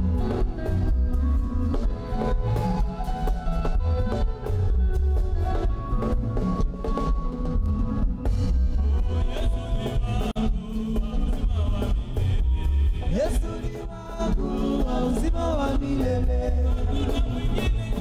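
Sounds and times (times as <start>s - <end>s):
live band with heavy bass: 0.0s - 18.0s
choir singing gospel song: 8.8s - 18.0s.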